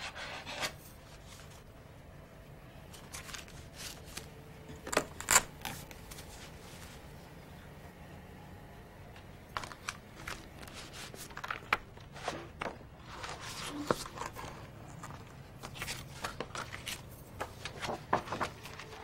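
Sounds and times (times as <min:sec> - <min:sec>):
paper rustling: 0:02.9 - 0:04.4, 0:05.6 - 0:07.0, 0:09.5 - 0:19.0.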